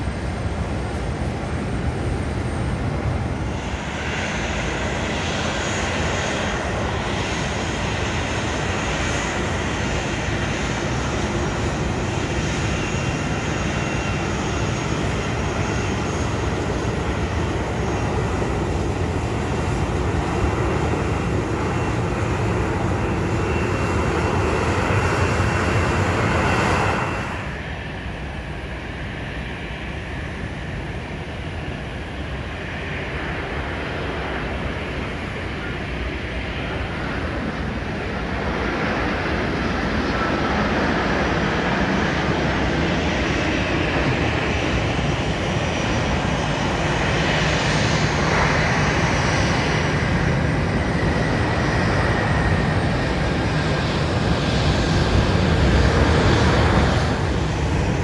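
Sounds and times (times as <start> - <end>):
airliner engines running: 0.0 - 58.0.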